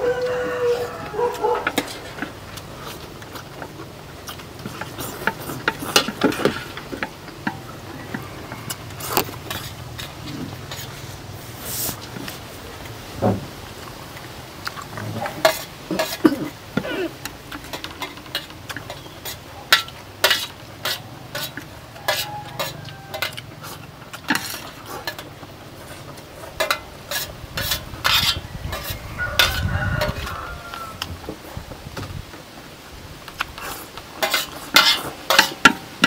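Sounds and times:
utensils clicking on plates: 0:01.4 - 0:11.0, 0:14.7 - 0:30.3, 0:33.4 - 0:36.0.

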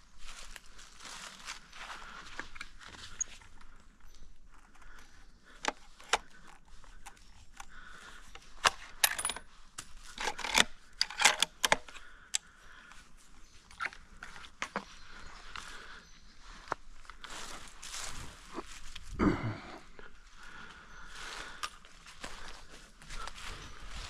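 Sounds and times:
footsteps through dry leaves: 0:00.0 - 0:03.1, 0:16.5 - 0:19.1, 0:21.0 - 0:24.0
sharp clicks and clinks: 0:08.6 - 0:11.9.

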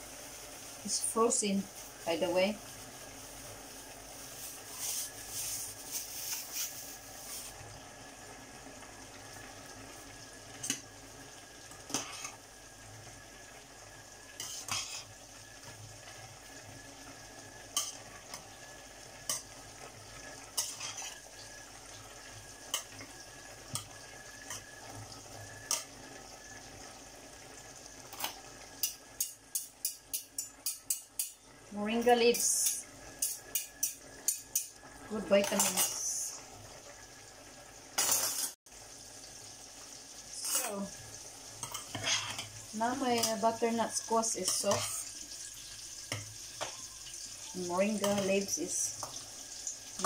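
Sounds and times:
plastic bag rustle: 0:01.7 - 0:07.6
spatula clinking and scraping pot: 0:11.8 - 0:12.4, 0:14.4 - 0:15.2, 0:17.7 - 0:18.5, 0:20.5 - 0:21.2, 0:28.1 - 0:31.4, 0:32.6 - 0:36.0, 0:41.6 - 0:45.2, 0:47.9 - 0:49.2.

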